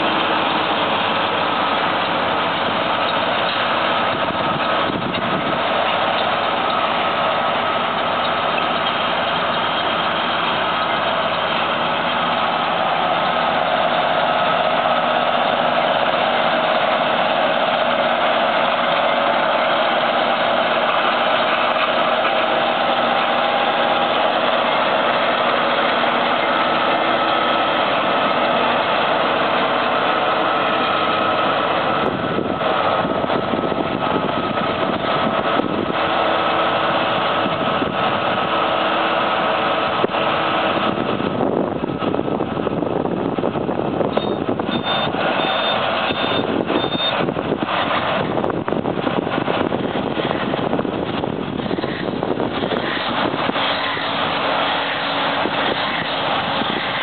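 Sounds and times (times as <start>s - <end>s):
tractor diesel engine running: 0.0s - 57.0s
wind buffeting microphone: 3.8s - 6.2s, 31.8s - 36.2s, 36.9s - 38.6s, 39.9s - 45.4s, 46.4s - 54.5s, 55.2s - 57.0s.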